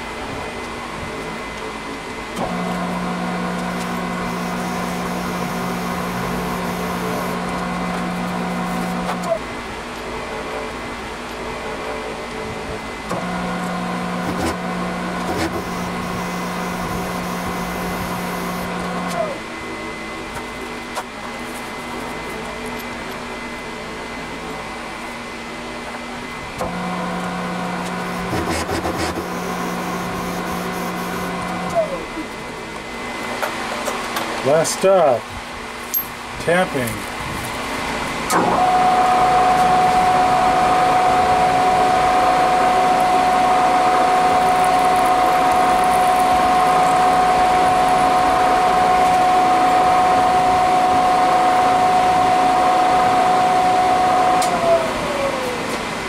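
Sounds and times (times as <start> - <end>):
spindle motor humming: 0.1 - 34.6, 37.0 - 56.0
milling machine cutting steel: 2.4 - 9.3, 13.0 - 19.4, 26.6 - 32.0, 38.4 - 55.6
cutter scraping steel: 14.2 - 19.3, 27.8 - 32.0.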